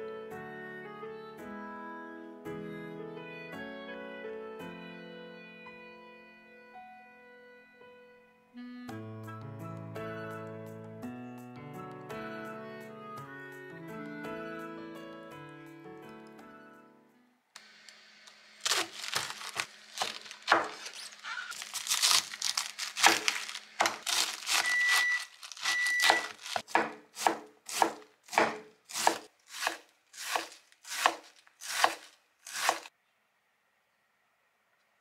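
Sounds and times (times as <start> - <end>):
knife slicing cabbage: 18.2 - 32.9
knife chopping on cutting board: 18.7 - 20.8, 23.0 - 24.8, 25.7 - 32.9.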